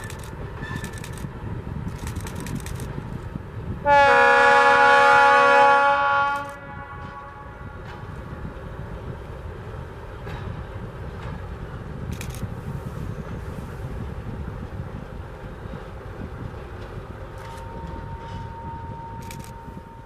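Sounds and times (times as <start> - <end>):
freight train rumbling past: 0.0 - 20.0
locomotive horn blast: 3.8 - 7.8.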